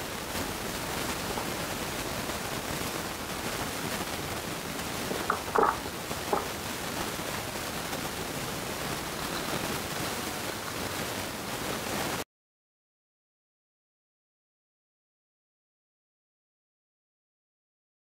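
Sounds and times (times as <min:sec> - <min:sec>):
steady hiss: 0:00.0 - 0:12.2
knife knocking on cutting board: 0:05.2 - 0:06.5.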